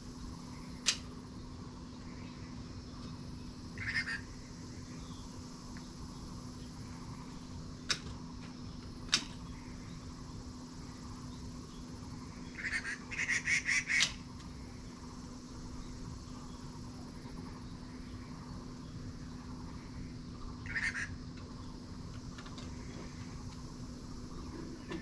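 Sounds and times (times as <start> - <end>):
sharp clicks: 0.8 - 1.1
animal calling: 3.8 - 4.4, 12.5 - 14.1, 20.6 - 21.2.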